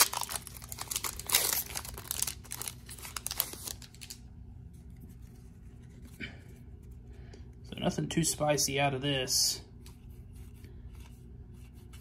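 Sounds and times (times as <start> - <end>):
wrapper tearing and crinkling: 0.0 - 4.2.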